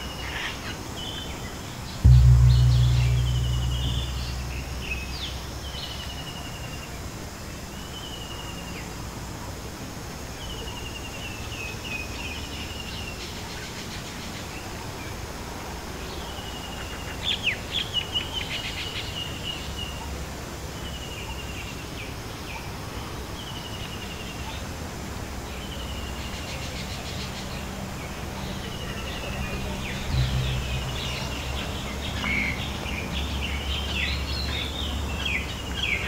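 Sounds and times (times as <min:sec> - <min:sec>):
steady background hiss: 0:00.0 - 0:36.0
gong low hum: 0:02.0 - 0:06.4, 0:30.0 - 0:33.6.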